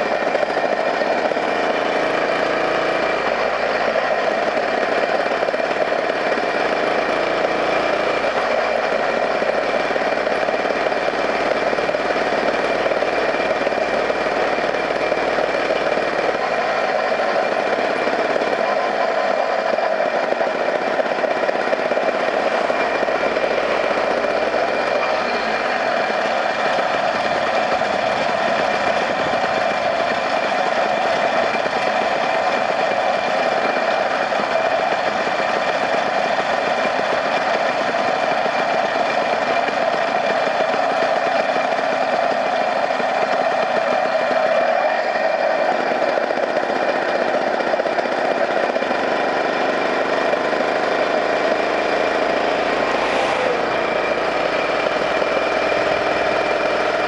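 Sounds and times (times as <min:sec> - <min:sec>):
vehicle engine and road noise: 0:00.0 - 0:41.8, 0:48.7 - 0:57.0
high whine: 0:00.0 - 0:48.0, 0:48.7 - 0:57.0.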